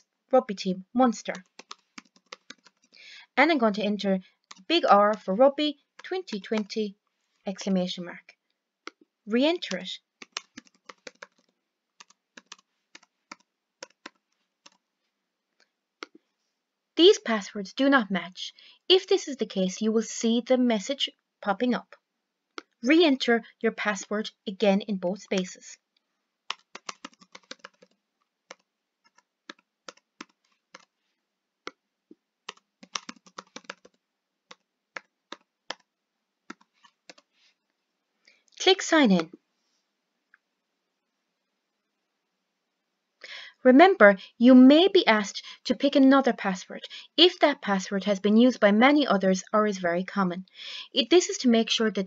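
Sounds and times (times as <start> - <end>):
typing on computer keyboard: 1.3 - 3.0, 9.6 - 14.8, 26.5 - 30.9, 32.5 - 35.9, 36.5 - 37.3.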